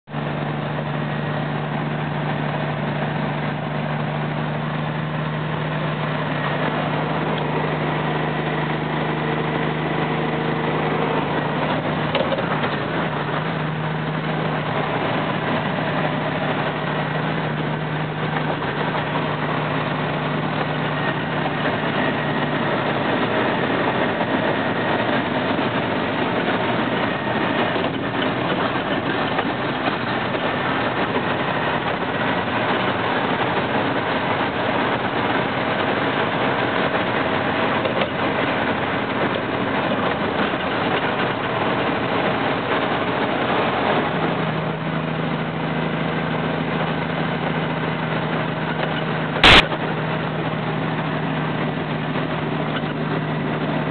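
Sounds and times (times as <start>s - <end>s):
diesel truck engine running: 0.0s - 53.9s
low engine hum: 0.0s - 53.9s
tyres rumbling on gravel: 0.1s - 53.9s.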